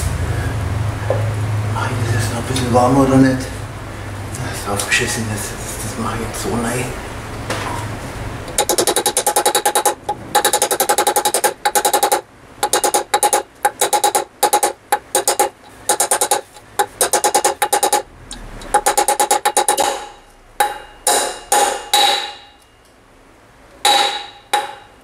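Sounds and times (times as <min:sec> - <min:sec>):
rapid hammer blows on steel: 0:08.5 - 0:22.6.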